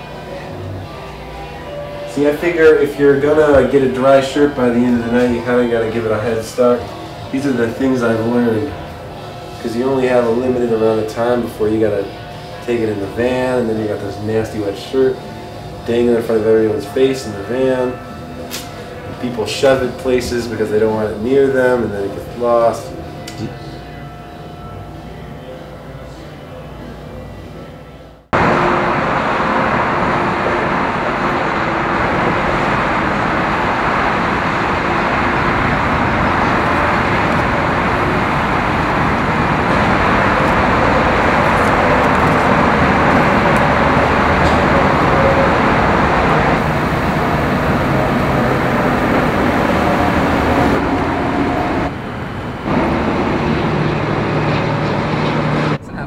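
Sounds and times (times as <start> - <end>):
vehicle road and wind noise: 28.4 - 55.8.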